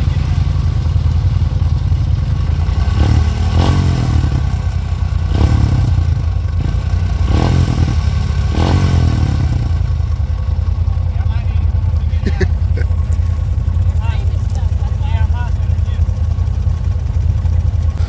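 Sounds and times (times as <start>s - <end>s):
atv engine revving: 0.0s - 18.0s.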